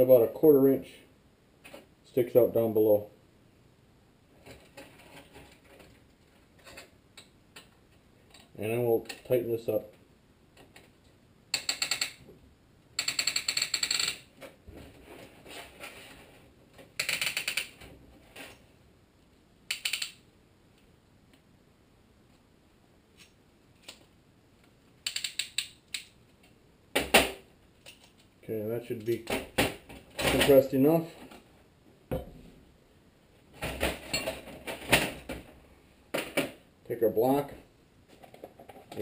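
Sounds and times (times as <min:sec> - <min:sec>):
ratchet clicking rapidly: 0:13.0 - 0:14.2.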